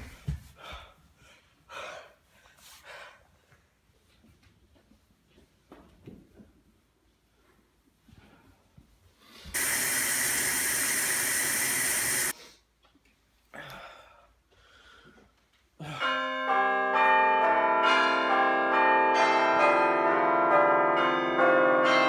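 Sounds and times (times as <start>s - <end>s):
loud even hiss: 9.6s - 12.3s.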